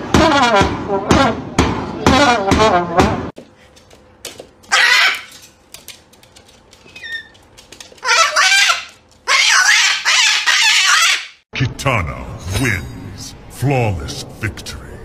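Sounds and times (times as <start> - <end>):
cockatoo shrill screeches: 4.7 - 5.4, 8.0 - 11.4.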